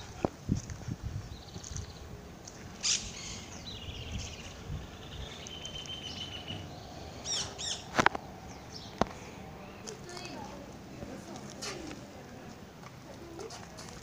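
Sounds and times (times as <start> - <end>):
outdoor background noise: 0.0 - 14.0
birds chirping and trilling: 1.2 - 10.4.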